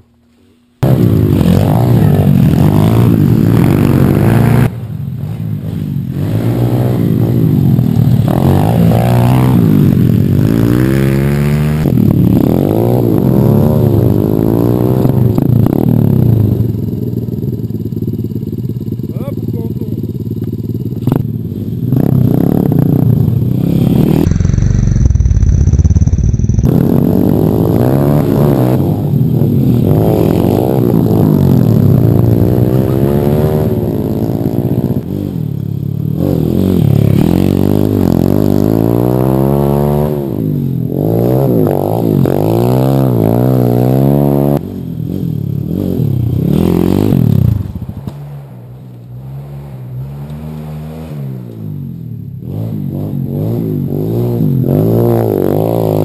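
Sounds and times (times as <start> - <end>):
motorbike engine revving: 0.8 - 56.0
loud low rumble: 11.9 - 38.0.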